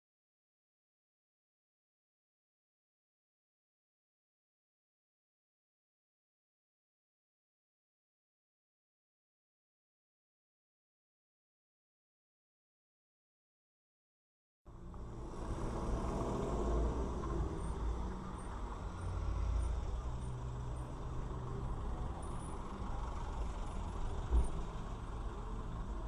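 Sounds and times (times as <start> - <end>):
car engine idling: 14.7 - 26.0
street traffic: 14.7 - 26.0.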